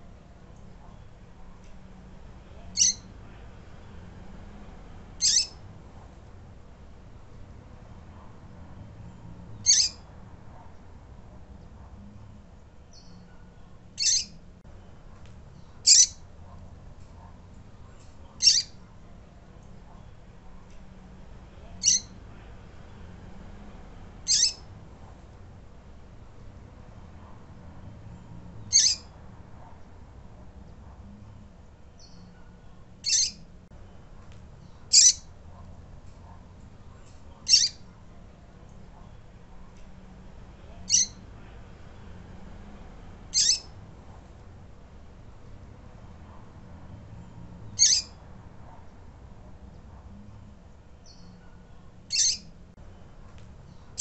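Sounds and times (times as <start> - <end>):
bird peeping high-pitched: 2.6 - 3.1, 5.2 - 5.6, 9.6 - 10.0, 14.0 - 14.4, 15.6 - 16.2, 18.3 - 18.8, 21.7 - 22.2, 24.3 - 24.7, 28.7 - 29.1, 32.0 - 33.4, 34.9 - 35.3, 37.4 - 37.8, 40.8 - 41.2, 43.4 - 43.7, 47.8 - 48.2, 51.0 - 52.5.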